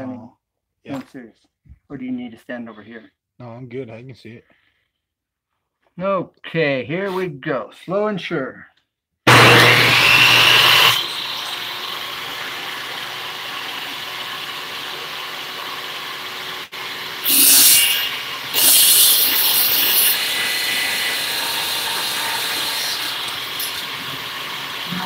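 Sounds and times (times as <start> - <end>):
saw blade cutting metal: 9.3 - 25.0
table saw running: 9.3 - 25.0.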